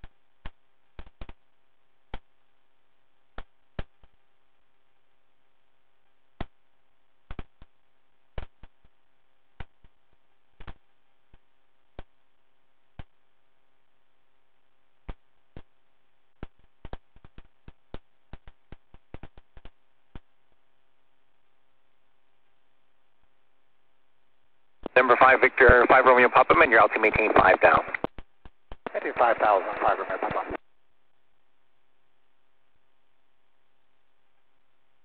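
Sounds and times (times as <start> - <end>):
faint steady hum: 0.0 - 35.0
radio clicks and pops: 24.8 - 30.6.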